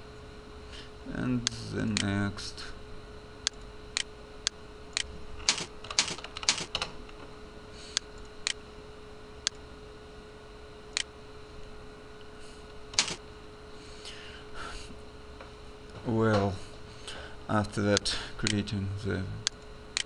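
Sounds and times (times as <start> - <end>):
faint steady hum: 0.0 - 20.0
keyboard typing clicks: 5.0 - 6.9.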